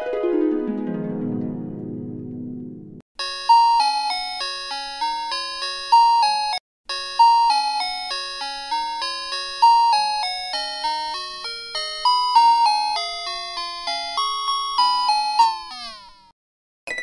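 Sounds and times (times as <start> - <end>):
bright chiming melody: 3.2 - 16.3.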